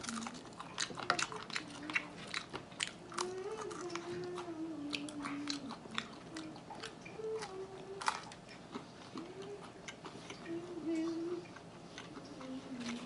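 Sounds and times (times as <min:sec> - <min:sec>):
chewing and biting: 0:00.0 - 0:13.0
person humming mmm: 0:03.1 - 0:08.4, 0:09.1 - 0:13.0.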